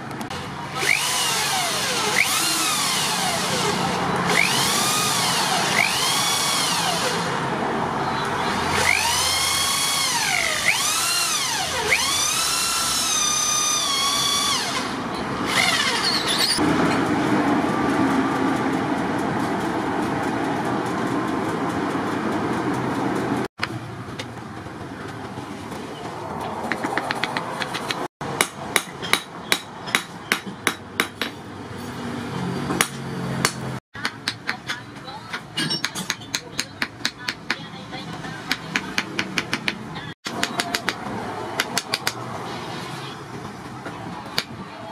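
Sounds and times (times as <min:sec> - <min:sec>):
cordless drill boring into wood: 0:00.8 - 0:07.3, 0:08.5 - 0:16.3.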